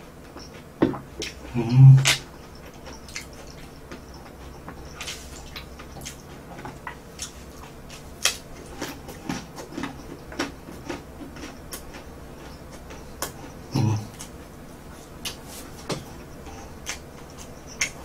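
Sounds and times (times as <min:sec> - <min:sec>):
chewing crispy bread sticks: 0:00.2 - 0:18.0.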